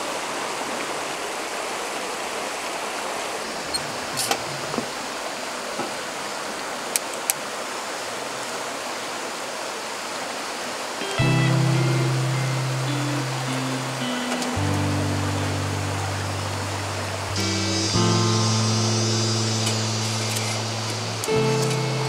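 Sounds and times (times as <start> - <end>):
stream flowing over stones: 0.0 - 12.9.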